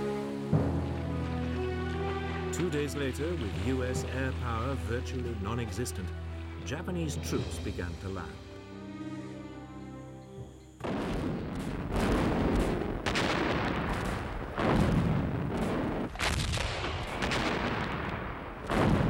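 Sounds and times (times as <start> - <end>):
gunfire: 10.8 - 19.0
heavy artillery blasts: 10.8 - 19.0.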